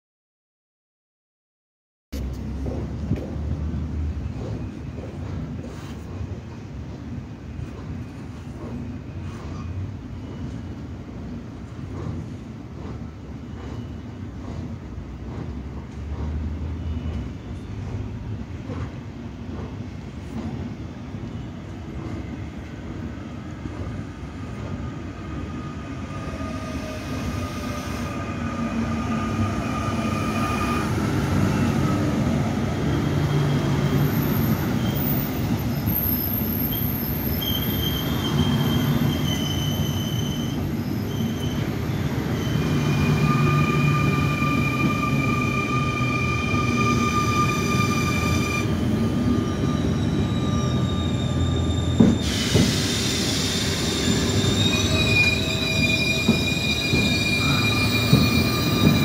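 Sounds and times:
train rumbling: 2.2 - 59.0
train wheel squeals: 7.6 - 18.9, 23.7 - 59.0.

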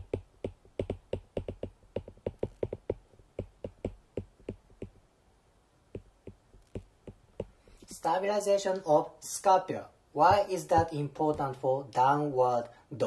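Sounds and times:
stylus tapping on glass screen: 0.0 - 5.0, 5.9 - 7.6.

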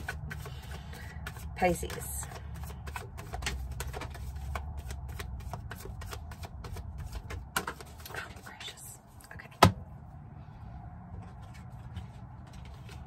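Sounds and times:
cards being shuffled: 0.0 - 8.5.

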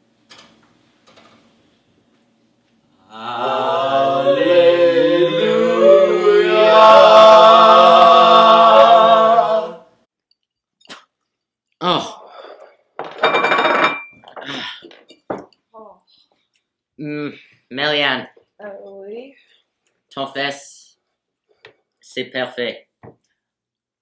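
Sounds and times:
young voices singing a held chord: 3.0 - 10.0.

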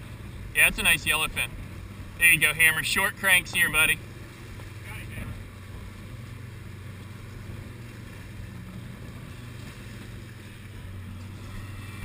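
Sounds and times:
motorboat engine running: 0.0 - 12.0
water washing along hull: 0.0 - 12.0.

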